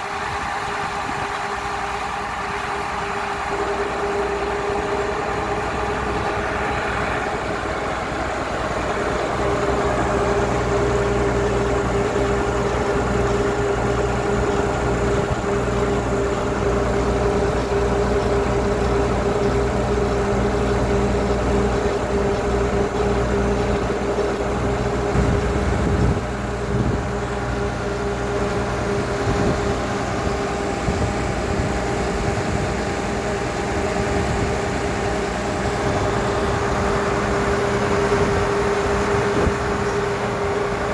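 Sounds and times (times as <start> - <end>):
drilling rig engine humming: 0.0 - 40.9.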